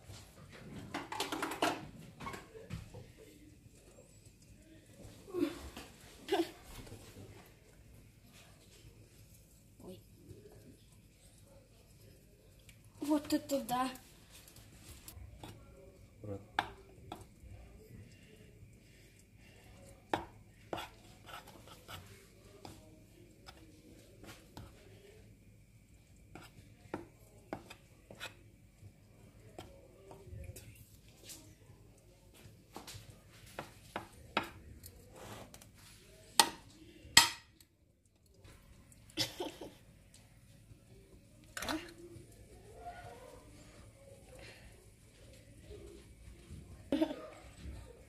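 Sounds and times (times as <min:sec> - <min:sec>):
metal spoon clinking on baking dish: 0:37.2 - 0:37.6.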